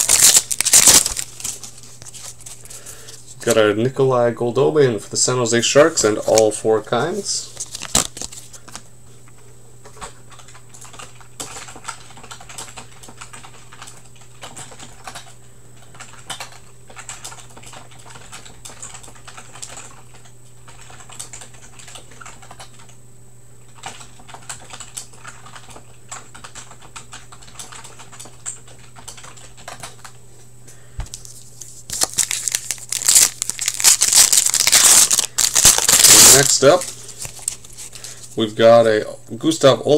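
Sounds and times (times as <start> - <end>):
card packs crinkling: 0.0 - 3.6, 5.7 - 8.9, 31.1 - 38.4.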